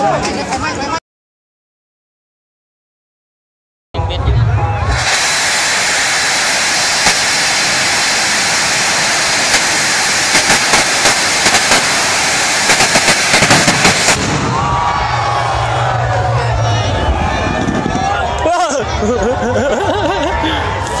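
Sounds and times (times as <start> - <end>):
rocket motor rushing hiss: 4.9 - 14.4
sharp crackles and pops: 6.9 - 14.4.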